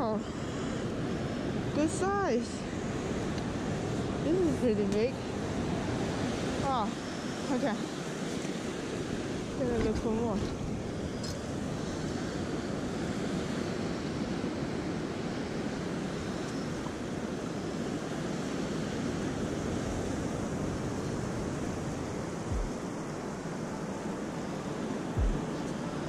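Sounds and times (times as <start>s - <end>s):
wind on microphone: 0.0s - 26.0s
ocean surf washing up: 0.3s - 26.0s
dull low thump: 22.5s - 22.8s, 25.2s - 25.6s.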